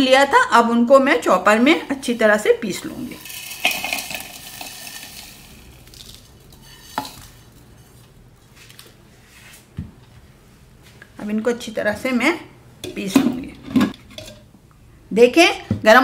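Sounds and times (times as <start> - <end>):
spices rattling into plastic bowl: 3.1 - 7.6.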